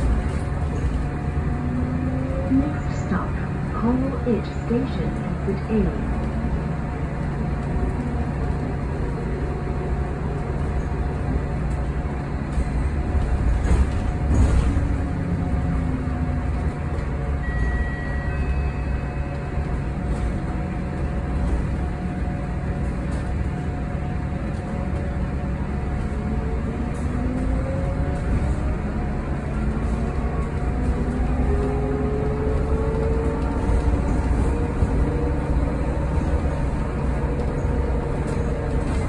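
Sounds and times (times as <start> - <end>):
road and tyre rumble: 0.0 - 39.0.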